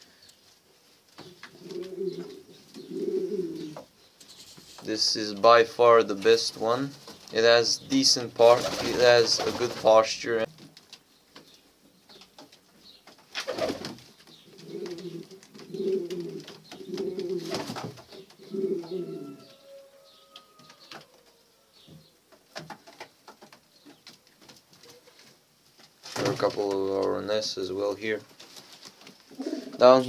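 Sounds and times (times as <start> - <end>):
pigeons cooing: 1.4 - 3.9, 13.4 - 22.2, 29.3 - 30.0.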